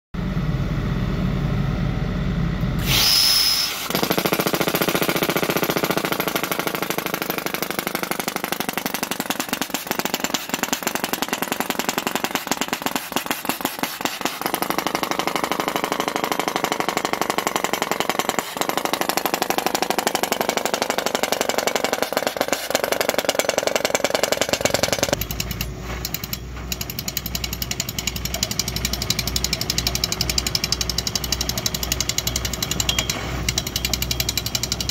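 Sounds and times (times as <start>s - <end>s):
machine engine running: 0.2s - 34.9s
burst of air: 2.8s - 4.1s, 8.9s - 14.8s
percussion drill hammering ground: 2.8s - 34.9s.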